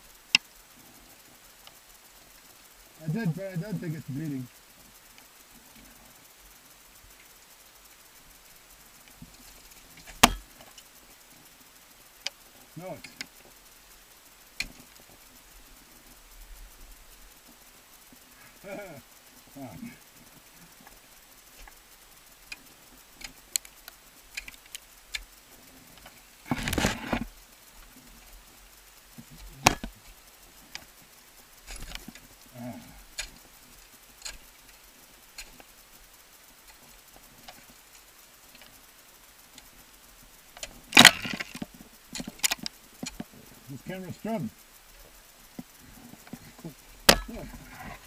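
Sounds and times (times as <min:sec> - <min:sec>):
faint ticks: 0:00.0 - 0:48.0
ice axe striking ice: 0:10.1 - 0:10.5, 0:40.6 - 0:41.6, 0:47.0 - 0:47.5
ice clattering: 0:41.0 - 0:41.6.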